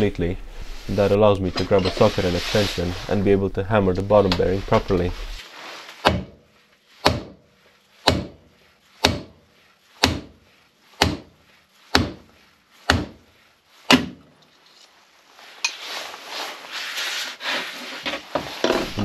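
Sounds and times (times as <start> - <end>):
metal scraping and rubbing: 0.0 - 5.9, 14.5 - 19.0.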